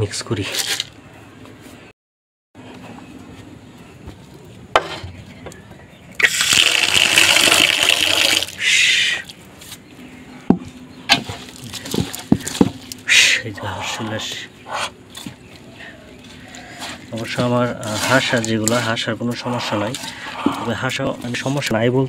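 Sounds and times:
water pouring into metal bowl: 6.2 - 8.6
hand mixing wet feed: 6.2 - 8.8, 15.7 - 21.7.

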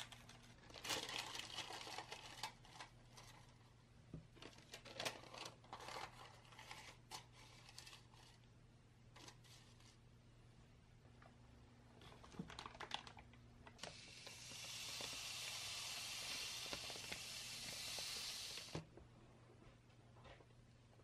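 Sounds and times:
plastic bag crinkles: 0.0 - 3.2, 12.0 - 17.8
sugar pouring into bowl: 14.0 - 18.8.

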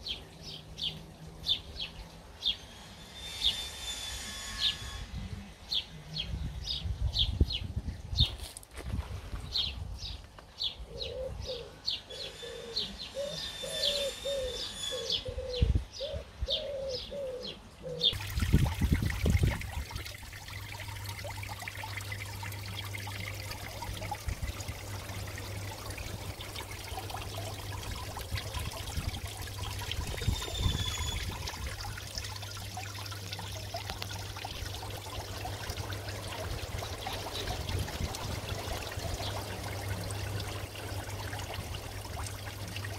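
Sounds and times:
pigeon cooing: 10.9 - 18.2
fountain splashing and trickling: 18.1 - 42.9.

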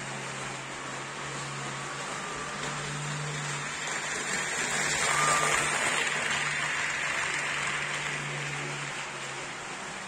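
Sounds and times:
model train wheels rattling on rails: 1.8 - 10.0.

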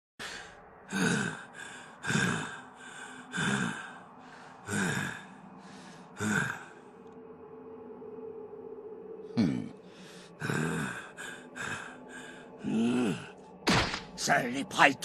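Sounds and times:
man breathing hard: 0.2 - 7.0, 9.8 - 13.4.

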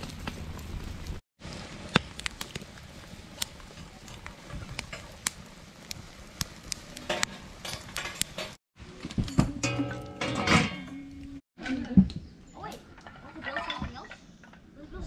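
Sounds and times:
campfire crackling and popping: 0.0 - 9.3.

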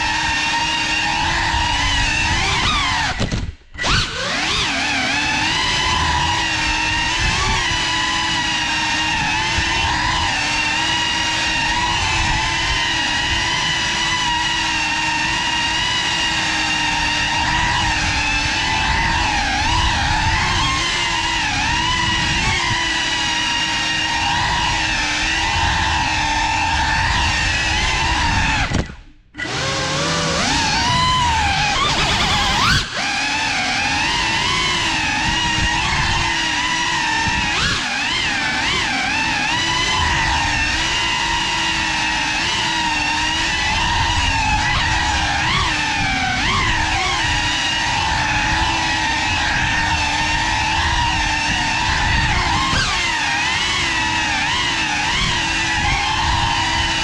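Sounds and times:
drone motors whining: 0.0 - 57.0.

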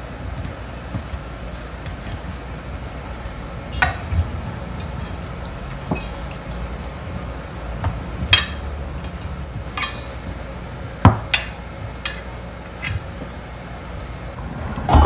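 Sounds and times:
steel plate clinking on metal: 9.8 - 10.2.

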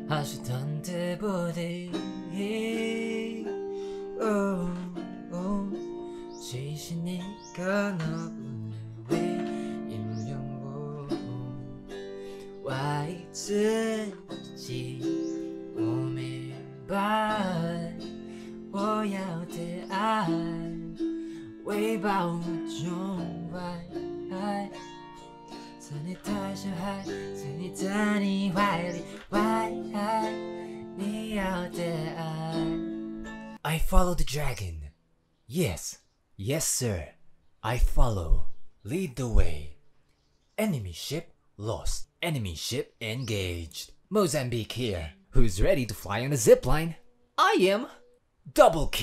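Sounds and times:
man singing: 0.0 - 24.9, 25.8 - 32.9
autoharp strummed chords: 7.4 - 33.6.

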